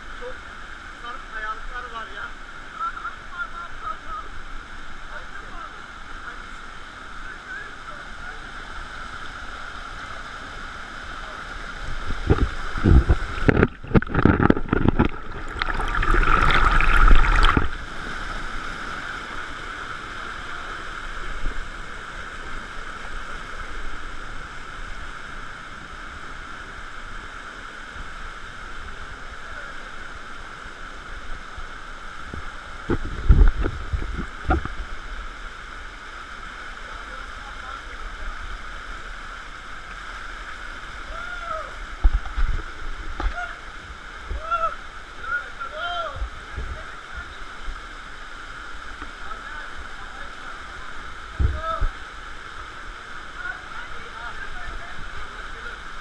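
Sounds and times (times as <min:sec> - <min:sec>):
stream water rushing: 0:00.0 - 0:56.0
low thumping and rumbling: 0:11.9 - 0:17.8.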